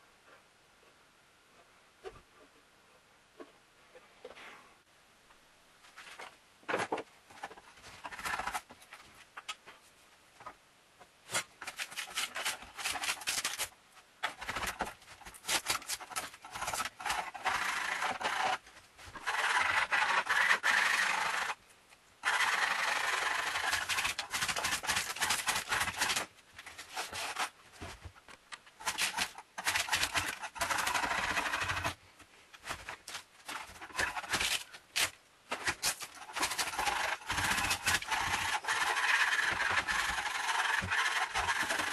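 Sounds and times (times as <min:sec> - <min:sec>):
hand scraper scraping wood: 0:14.3 - 0:21.6, 0:22.2 - 0:27.6, 0:28.8 - 0:32.0, 0:32.7 - 0:41.9.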